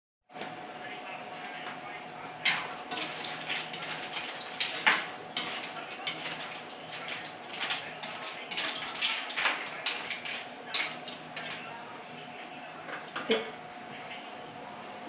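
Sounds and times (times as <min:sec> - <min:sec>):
utensil scraping and clinking pan: 0:02.5 - 0:11.6.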